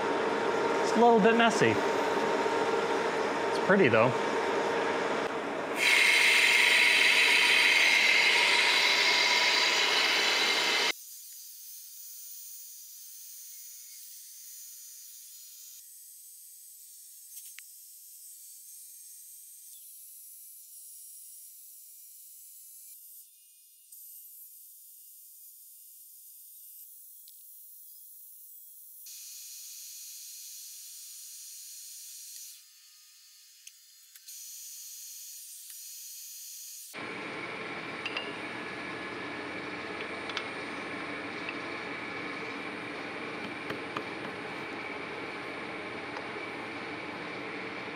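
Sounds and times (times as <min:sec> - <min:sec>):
metal lathe cutting with whine: 0:00.0 - 0:10.9.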